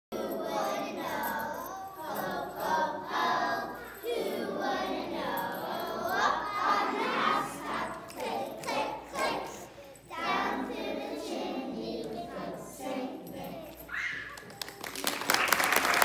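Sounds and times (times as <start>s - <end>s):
young children singing in unison: 0.1s - 14.7s.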